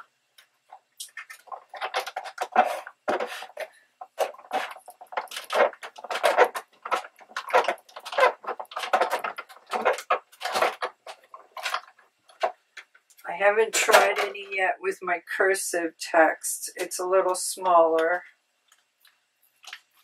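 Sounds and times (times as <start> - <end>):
paper rustling and shuffling: 1.2 - 12.9.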